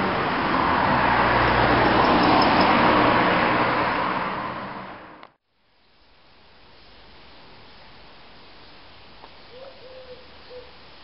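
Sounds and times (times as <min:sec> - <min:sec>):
vehicle passing by: 0:00.0 - 0:05.2.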